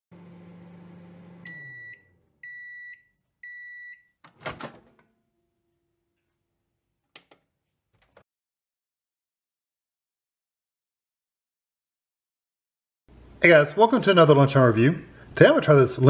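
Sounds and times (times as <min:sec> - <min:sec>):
microwave oven humming: 0:00.1 - 0:06.0
high microwave beeps: 0:01.4 - 0:04.2.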